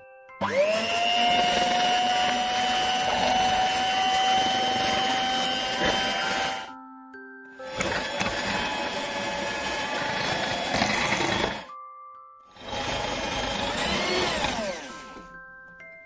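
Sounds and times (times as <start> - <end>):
electric hand mixer whisking cream: 0.4 - 6.7, 7.6 - 11.7, 12.5 - 15.3.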